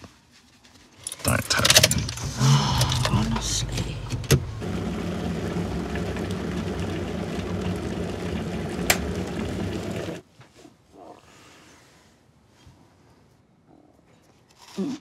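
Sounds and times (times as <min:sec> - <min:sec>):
electric kettle rumbling: 0:02.1 - 0:10.2.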